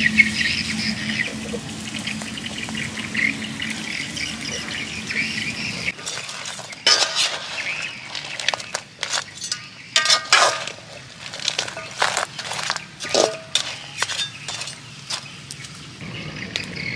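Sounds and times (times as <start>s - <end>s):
metal spatula scraping wok: 5.9s - 15.2s.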